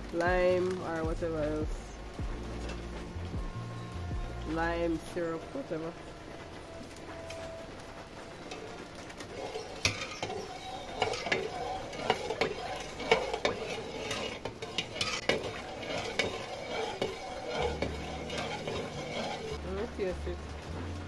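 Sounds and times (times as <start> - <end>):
metal spoon clinking in pot: 9.3 - 19.6.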